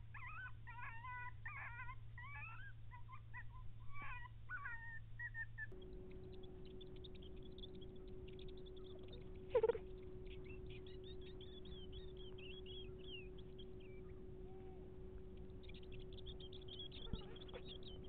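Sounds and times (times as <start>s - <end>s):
coyotes yipping and howling: 0.0s - 18.0s
electronic hum: 5.7s - 18.0s.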